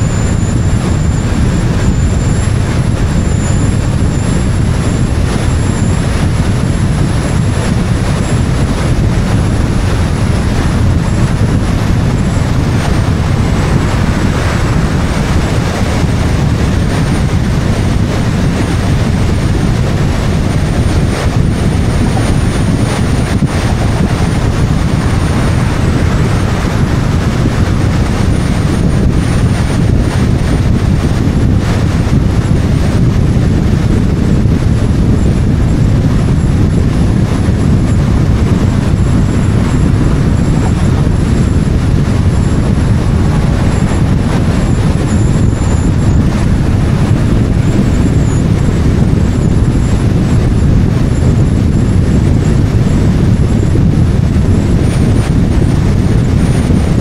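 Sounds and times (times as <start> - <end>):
wind rushing over microphone: 0.0 - 57.0
tyre and road noise: 6.1 - 30.2.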